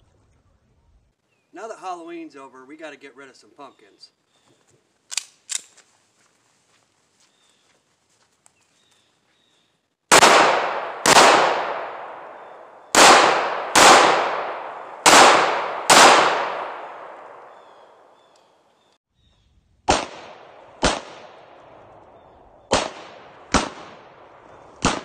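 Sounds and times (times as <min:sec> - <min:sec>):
pistol shots echoing: 0:10.1 - 0:18.0, 0:19.9 - 0:25.0.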